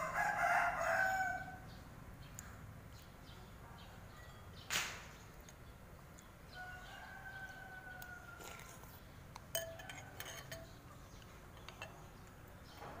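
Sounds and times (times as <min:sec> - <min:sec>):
spoon and chopsticks clinking bowl: 0:09.5 - 0:10.8.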